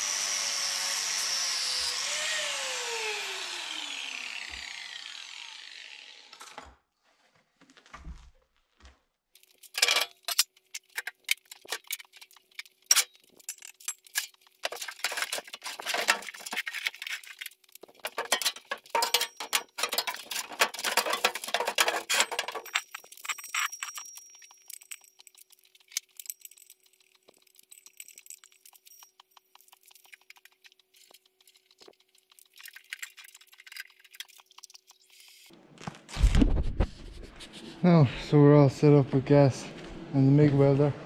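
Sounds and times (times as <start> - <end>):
angle grinder spinning down: 0.0 - 6.6
metallic clanks and knocks: 9.7 - 10.4, 18.0 - 23.5.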